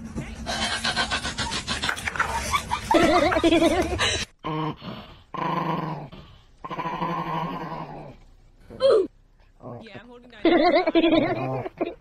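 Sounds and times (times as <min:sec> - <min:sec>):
dog growling: 0:04.4 - 0:08.8.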